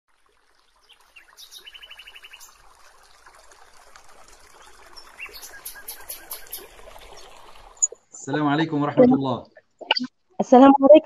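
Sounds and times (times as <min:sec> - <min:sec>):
trickle of running water: 0:00.1 - 0:08.0
birds chirping: 0:00.8 - 0:02.6, 0:04.6 - 0:07.9.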